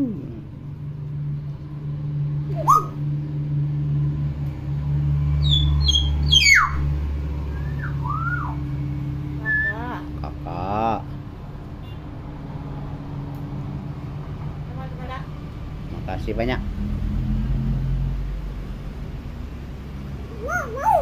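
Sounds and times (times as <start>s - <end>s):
steady low hum: 0.0s - 21.0s
myna whistles and calls: 2.5s - 3.0s, 5.4s - 6.8s, 7.5s - 8.6s.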